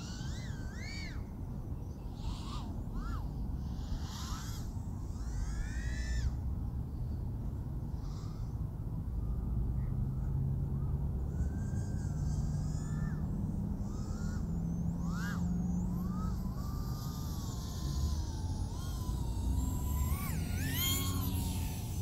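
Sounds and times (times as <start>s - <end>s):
low steady hum: 0.0s - 22.0s
drone motors whining: 2.2s - 6.2s, 11.3s - 22.0s.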